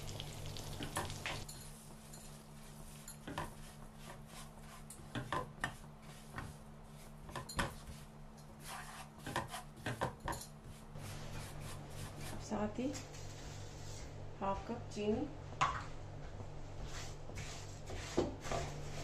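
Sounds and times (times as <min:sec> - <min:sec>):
spoon scraping a pan: 0:00.8 - 0:14.1.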